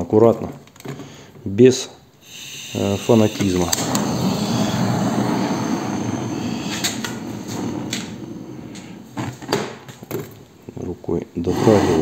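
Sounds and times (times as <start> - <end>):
gas torch flame hissing: 2.2 - 9.9.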